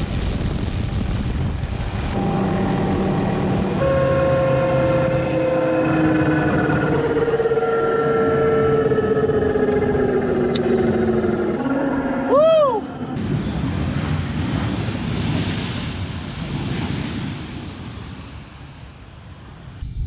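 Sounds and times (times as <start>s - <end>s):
helicopter winding down: 2.1s - 13.2s.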